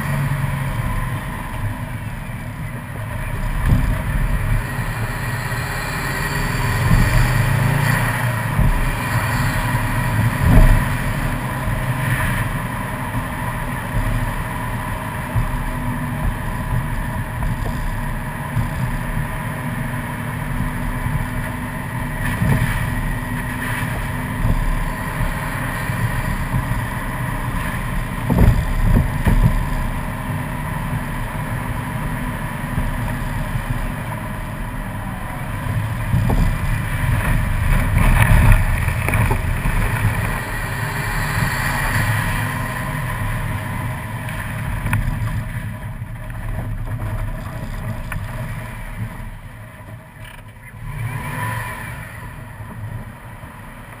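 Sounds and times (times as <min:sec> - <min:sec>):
car engine and tyre rumble: 0:00.0 - 0:54.0
low thumps from bumps: 0:03.2 - 0:05.6, 0:06.4 - 0:21.5, 0:22.1 - 0:30.1, 0:35.6 - 0:43.6.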